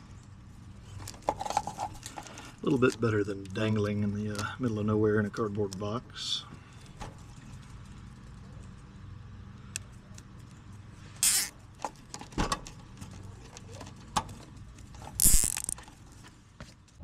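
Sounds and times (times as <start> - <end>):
wires rustling and clicking: 9.8 - 17.0.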